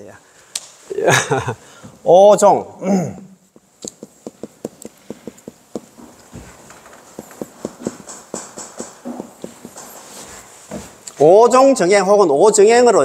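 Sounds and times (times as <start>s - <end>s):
marker squeaking on whiteboard: 3.8s - 10.7s.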